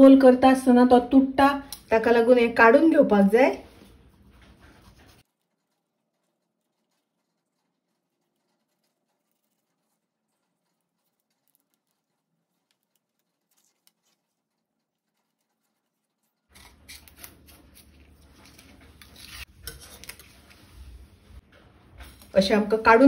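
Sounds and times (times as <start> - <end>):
serrated knife cutting leaf: 16.5 - 17.9.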